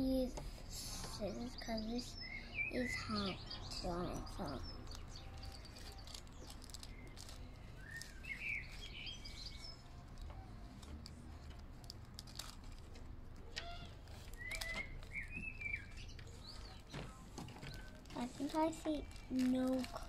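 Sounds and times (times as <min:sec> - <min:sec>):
birds chirping: 0:00.0 - 0:11.7, 0:12.3 - 0:20.0
scissors cutting plastic wrap: 0:03.8 - 0:15.3, 0:16.3 - 0:20.0.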